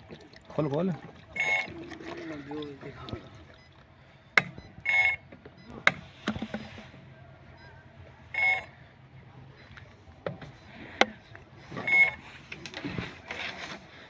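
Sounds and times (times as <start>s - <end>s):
short electronic beep: 1.4s - 1.8s, 3.6s - 5.8s, 7.5s - 8.7s, 11.8s - 12.2s
plastic clicks and knocks: 5.3s - 6.7s.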